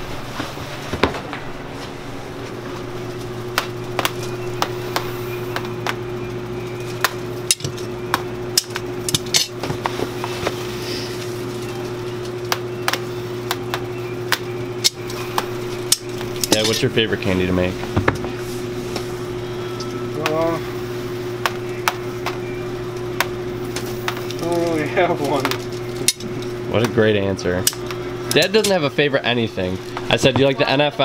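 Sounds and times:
electrical hum: 0.0s - 31.0s.

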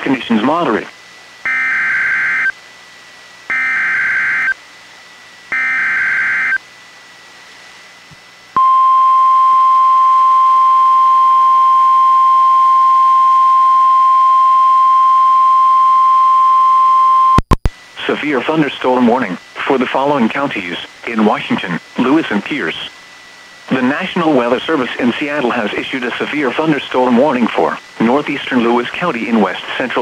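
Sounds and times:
steady warning alarm tone: 1.4s - 2.6s, 3.5s - 4.6s, 5.5s - 6.6s, 8.6s - 17.4s
screechy digital data bursts: 1.5s - 2.6s, 3.5s - 4.6s, 5.5s - 6.6s.

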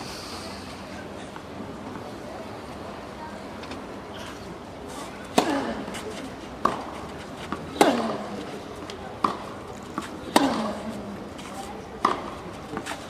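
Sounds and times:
tennis racket hitting ball: 5.3s - 8.5s, 9.2s - 11.0s, 12.0s - 13.0s.

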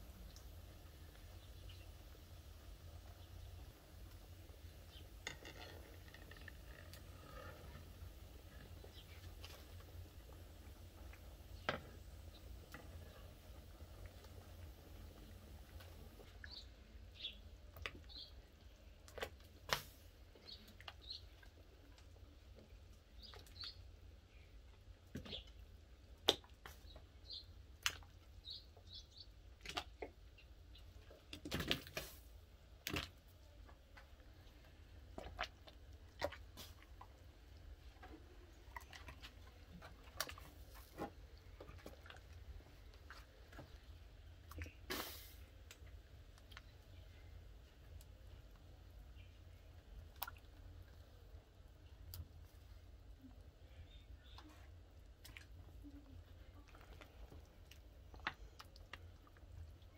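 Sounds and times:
small birds chirping: 0.0s - 19.4s, 20.2s - 31.4s, 46.2s - 50.4s, 51.0s - 59.9s.

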